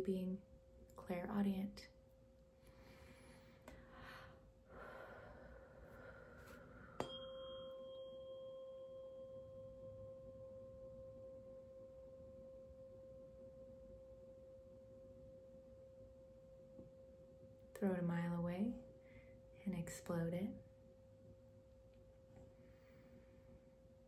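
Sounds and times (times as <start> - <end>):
tuning fork ringing: 5.4 - 17.8.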